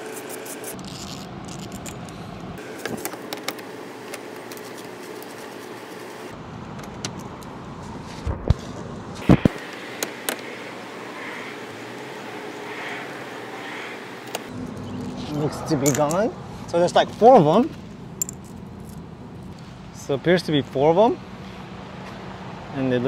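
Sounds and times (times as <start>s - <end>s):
ratchet clicking and clinking: 18.2s - 19.0s.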